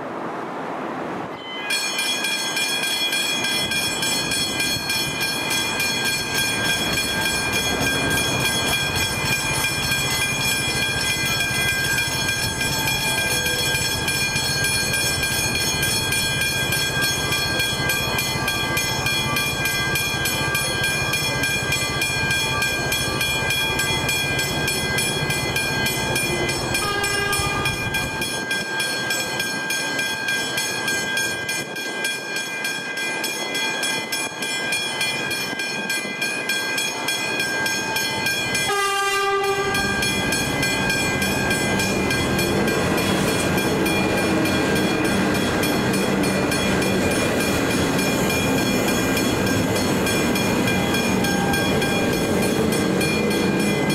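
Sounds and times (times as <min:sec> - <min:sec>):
level crossing bells clanging: 0:01.4 - 0:53.9.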